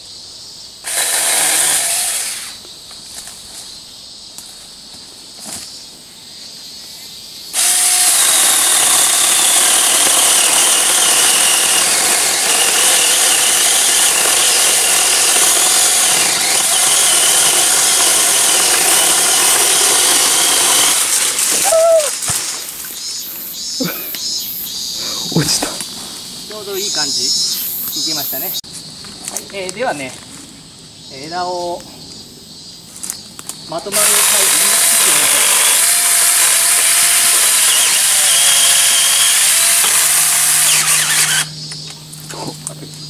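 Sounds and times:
electric chainsaw cutting branch: 0:00.8 - 0:02.6, 0:07.5 - 0:23.0, 0:33.9 - 0:42.5
branch cracking and crashing: 0:20.4 - 0:22.9.

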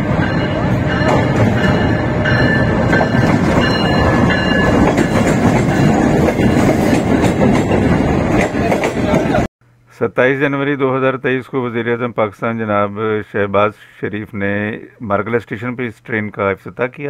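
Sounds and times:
diesel locomotive engine running: 0:00.0 - 0:09.5
train wheels clattering over rails: 0:00.1 - 0:09.5.

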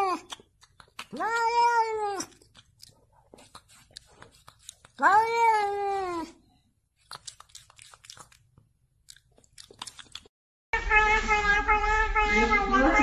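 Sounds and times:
cat meowing: 0:01.1 - 0:02.4, 0:05.0 - 0:06.4.

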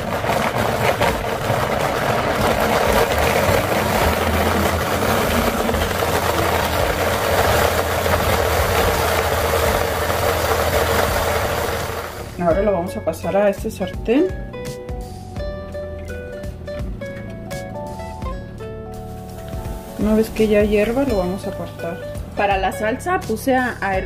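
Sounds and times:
blender running at high speed: 0:00.0 - 0:12.4.

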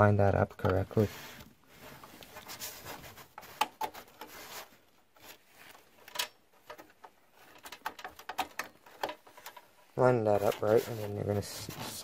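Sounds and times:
small clicks and taps: 0:06.0 - 0:09.7
light rubbing: 0:07.3 - 0:12.0.

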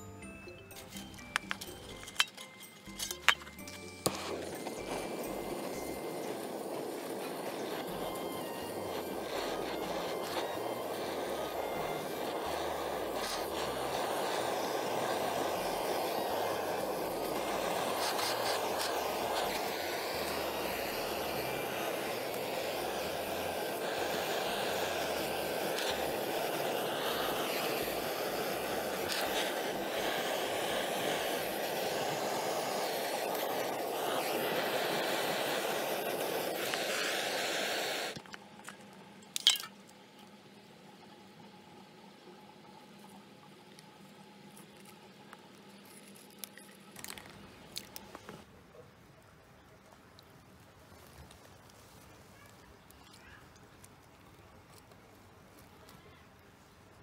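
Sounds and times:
gas torch flame rushing: 0:04.0 - 0:38.2.

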